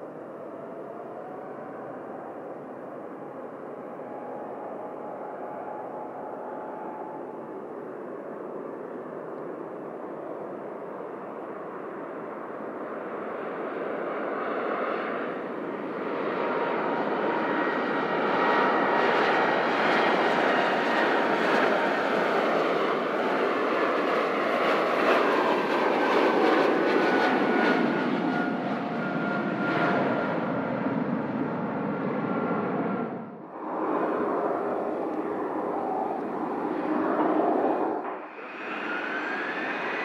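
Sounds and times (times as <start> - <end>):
airliner engines passing: 0.0 - 40.0.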